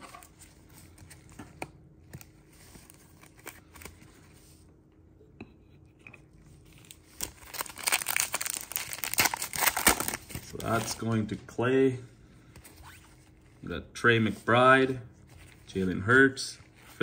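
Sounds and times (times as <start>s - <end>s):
foil wrapper crinkling: 6.8s - 11.1s.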